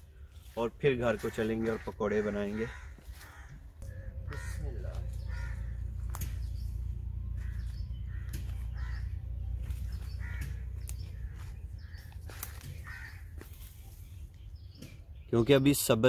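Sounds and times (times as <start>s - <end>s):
rustling of plants: 0.0s - 15.1s
crows cawing: 0.3s - 14.0s
low rumble on microphone: 3.3s - 15.2s.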